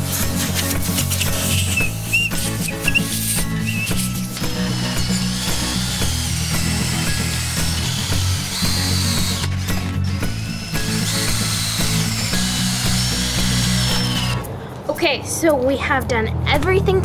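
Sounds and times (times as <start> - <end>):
wire brush scrubbing iron: 0.0 - 14.4
drill motors whining: 0.0 - 14.5.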